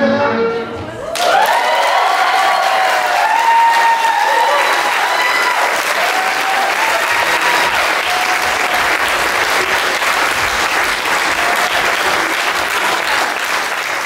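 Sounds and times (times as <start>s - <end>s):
audience applauding: 1.0s - 14.0s.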